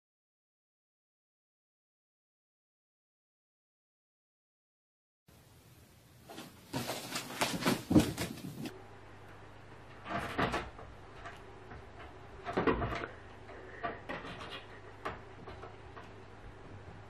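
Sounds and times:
noisy bumps: 6.3 - 8.8, 9.8 - 17.0.

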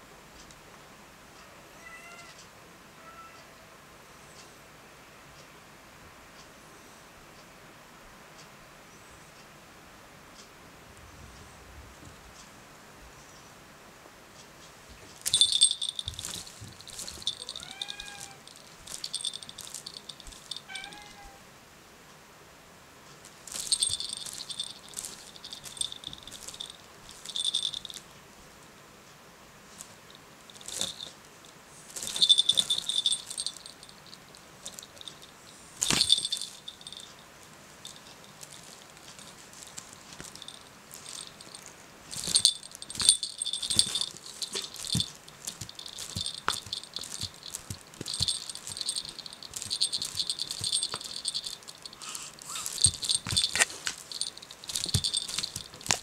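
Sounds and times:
knocks and rustles in basket: 14.9 - 20.8, 23.4 - 28.0, 30.6 - 31.1, 31.8 - 37.1, 37.8 - 56.0
small bell jingling: 15.2 - 21.4, 23.5 - 28.0, 30.1 - 56.0.

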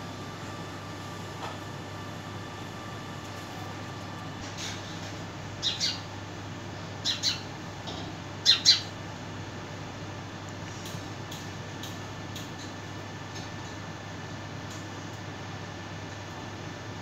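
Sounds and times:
steady low hum: 0.0 - 17.0
sparrow chirping: 5.6 - 6.1, 7.0 - 7.5, 8.4 - 8.9.

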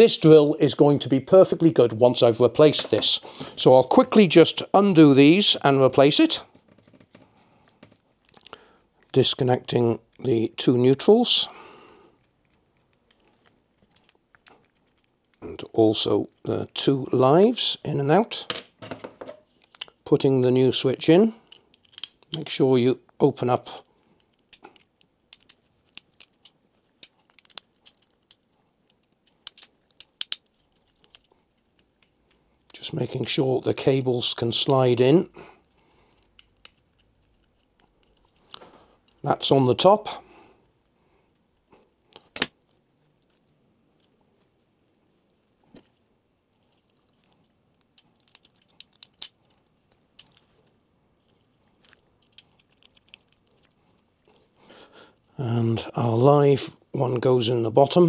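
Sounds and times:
wires rustling: 5.6 - 10.4, 12.0 - 16.9, 23.2 - 40.0, 40.6 - 55.4.

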